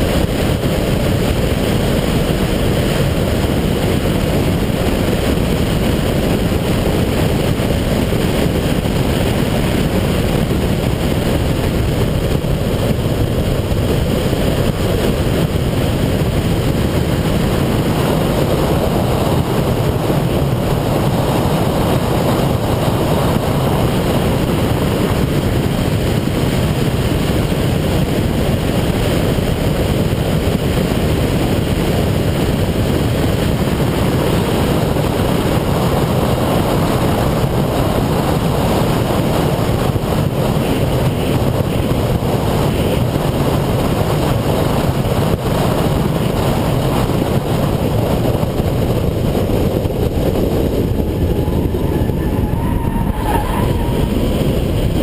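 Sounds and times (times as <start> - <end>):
car engine tyre and wind rumble: 0.0 - 55.0.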